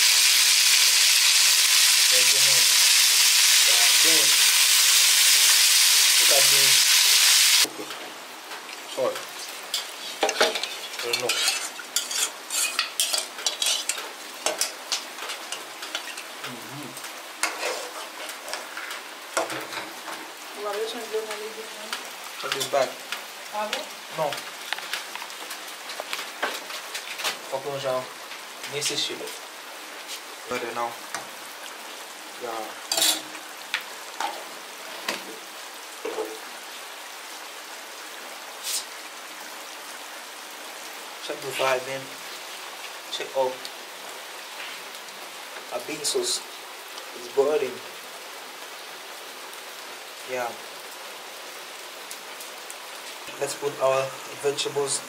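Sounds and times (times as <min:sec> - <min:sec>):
food sizzling: 0:00.0 - 0:55.0
rain hissing: 0:00.0 - 0:55.0
utensil scraping in pot: 0:09.7 - 0:14.0, 0:17.4 - 0:19.0, 0:32.9 - 0:33.4.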